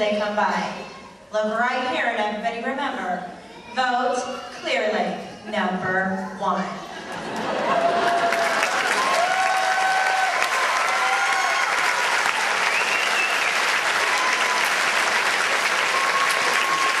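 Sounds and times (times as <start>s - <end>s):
audience applauding: 7.1s - 17.0s
crowd cheering and whooping: 7.1s - 17.0s.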